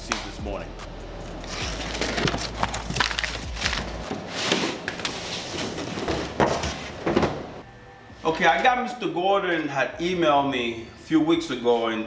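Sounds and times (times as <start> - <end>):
plastic wrap crackling and tearing: 1.5 - 4.3
cardboard box knocks and scrapes: 5.5 - 7.5.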